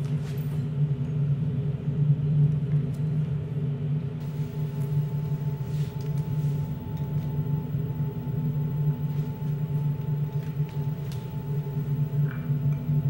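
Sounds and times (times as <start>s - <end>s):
low humming drone: 0.0s - 13.0s
thin high sustained tone: 4.2s - 13.0s.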